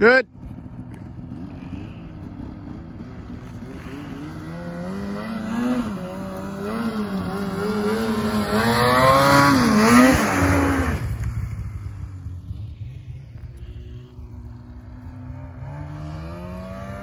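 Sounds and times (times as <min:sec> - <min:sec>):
snowmobile engine revving: 0:00.0 - 0:17.0.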